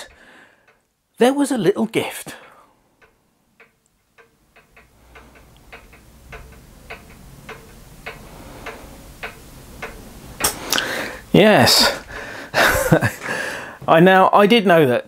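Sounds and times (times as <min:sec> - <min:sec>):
clock ticking: 0:00.0 - 0:01.0, 0:02.8 - 0:13.2.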